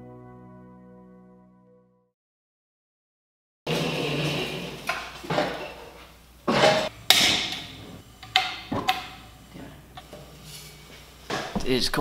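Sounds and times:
patio heater controls clicking: 7.1s - 10.1s.

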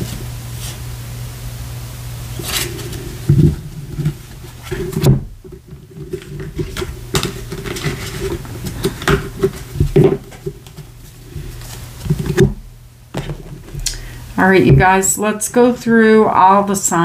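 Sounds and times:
low steady hum: 0.0s - 17.0s
cards sliding and tapping: 2.4s - 12.5s.

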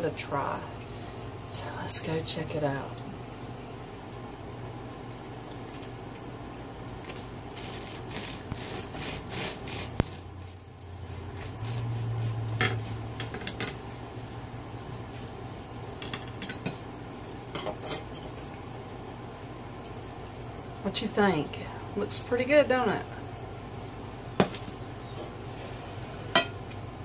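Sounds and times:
knife sawing through bread crust: 7.6s - 10.3s.

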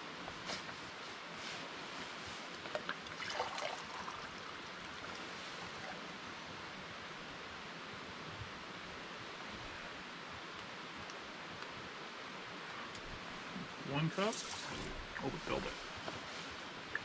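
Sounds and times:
small stream rushing: 0.0s - 17.0s.

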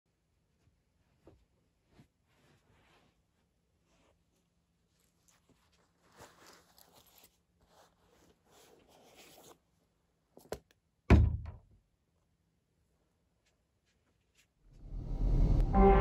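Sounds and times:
fabric bag rustling: 1.8s - 9.7s.

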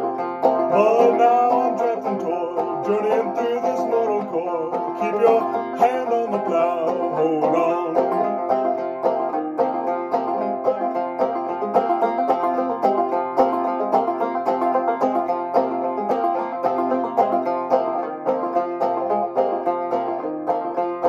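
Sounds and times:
banjo picking: 0.0s - 21.0s.

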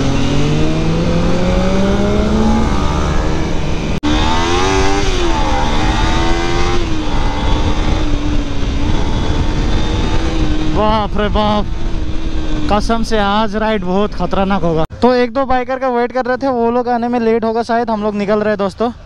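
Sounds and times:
motorcycle engine accelerating: 0.0s - 14.9s.

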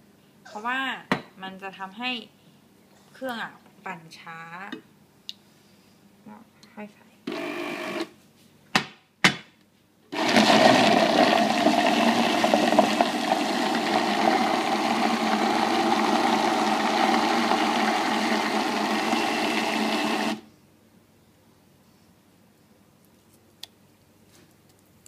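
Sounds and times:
blender motor whirring: 7.3s - 8.1s, 10.2s - 20.4s.

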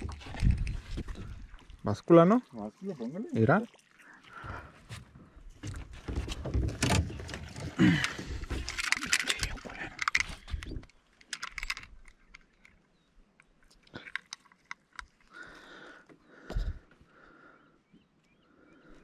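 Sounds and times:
clicks rattles and rustling: 5.6s - 12.8s, 13.7s - 15.3s.

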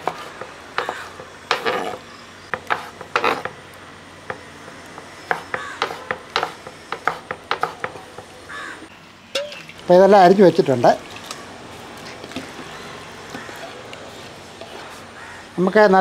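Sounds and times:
knife chopping on wooden board: 0.0s - 3.6s, 5.0s - 8.3s
knife scraping on board: 0.0s - 3.6s, 5.3s - 8.1s, 12.3s - 15.1s.

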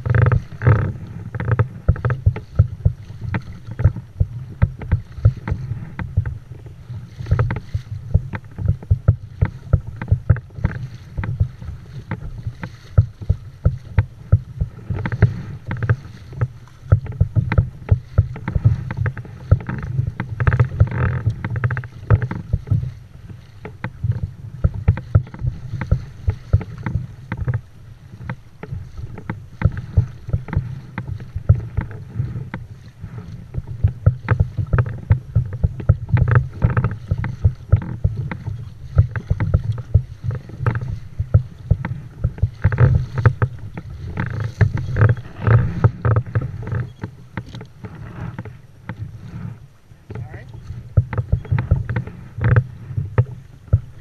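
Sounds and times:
steady low rumble: 0.0s - 54.0s
water slapping against hull: 0.0s - 54.0s.

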